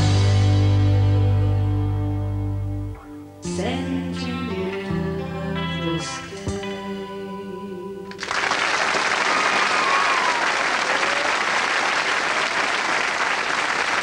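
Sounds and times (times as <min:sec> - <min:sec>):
audience applause: 0:08.1 - 0:14.0.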